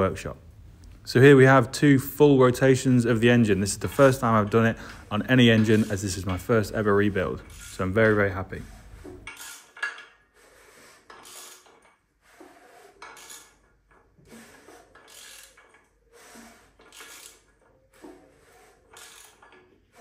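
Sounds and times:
ratchet clicking: 9.2 - 10.2, 11.0 - 15.9, 16.8 - 19.8.

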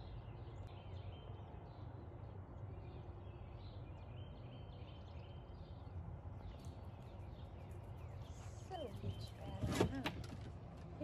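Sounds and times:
small birds chirping: 0.0 - 10.2.

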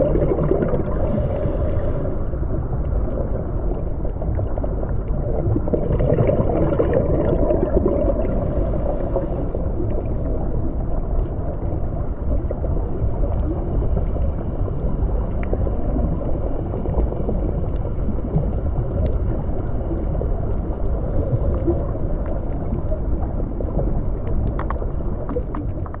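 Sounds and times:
underwater rumbling wash: 0.0 - 26.0
faint clicks: 8.5 - 26.0.

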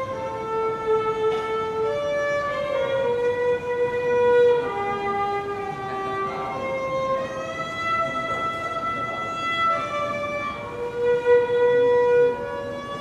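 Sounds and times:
solo violin slow melody: 0.0 - 13.0.

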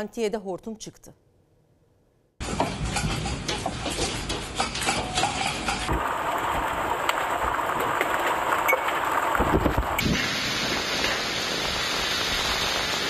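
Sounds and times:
hail and rain clattering: 2.4 - 13.0
heavy downpour: 5.9 - 13.0.

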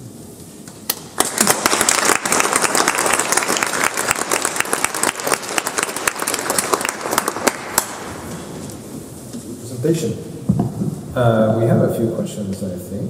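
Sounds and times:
audience applauding: 0.9 - 8.7.

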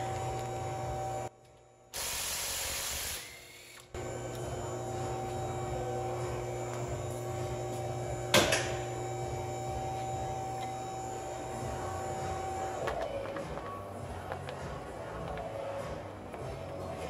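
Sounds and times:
hiss: 2.0 - 3.2
steady background hum: 3.6 - 17.0.

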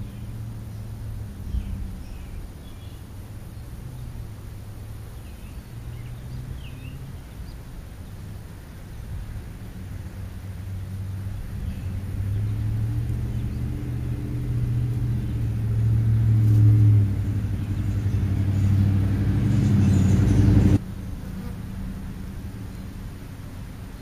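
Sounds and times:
low droning hum: 8.5 - 24.0.

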